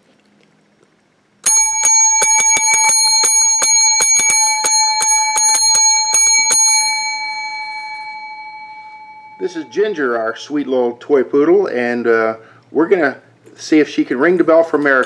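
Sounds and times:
desk bell dinging: 1.4s - 10.5s.

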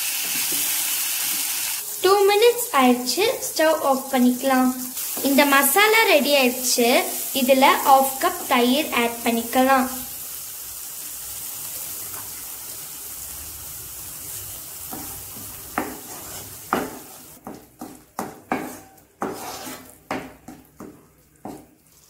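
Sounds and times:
masala sizzling in frying pan: 0.0s - 22.0s
spatula scraping and tapping pan: 14.8s - 21.9s.

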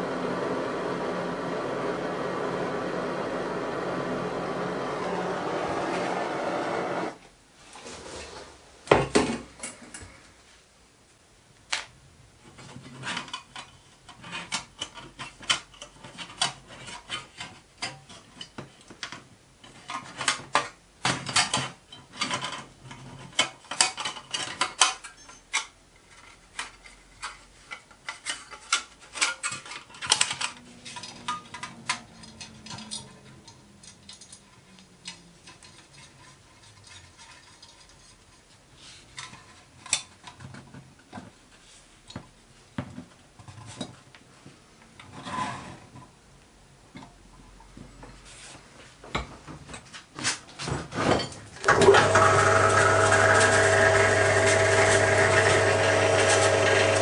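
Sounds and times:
metallic clicks and clinks of brass parts: 23.4s - 25.8s, 26.6s - 38.2s.

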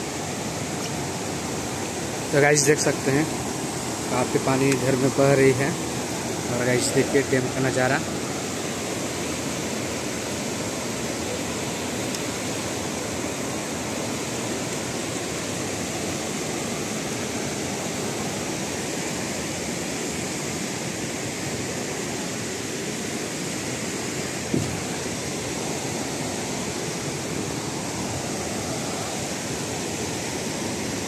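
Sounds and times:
water rushing over a weir: 0.0s - 31.0s
short knock: 24.5s - 24.8s.

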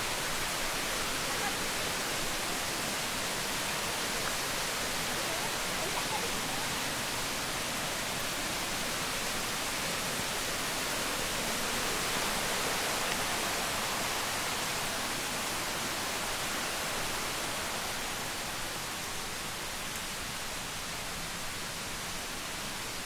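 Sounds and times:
running water rushing: 0.0s - 23.0s.

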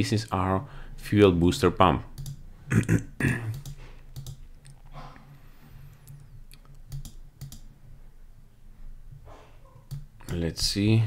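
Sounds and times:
computer mouse clicks: 2.2s - 2.4s, 3.5s - 4.9s, 5.9s - 7.7s, 9.8s - 10.4s.

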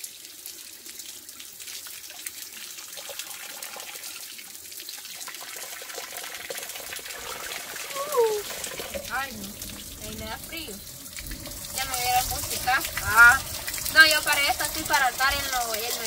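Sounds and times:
water stream splashing onto rock: 6.4s - 16.0s.

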